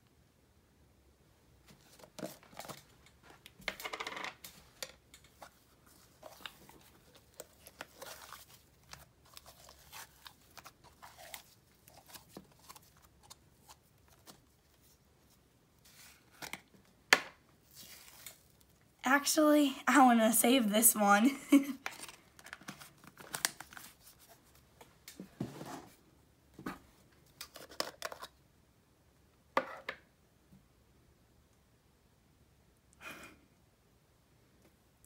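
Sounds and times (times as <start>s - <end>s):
soft slime handling noises: 4.4s - 19.0s.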